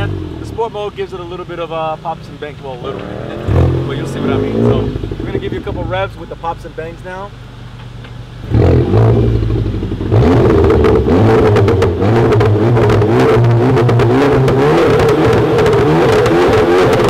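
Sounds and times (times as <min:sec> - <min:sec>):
car engine revving: 0:00.0 - 0:17.0
exhaust pops and crackles: 0:00.0 - 0:17.0.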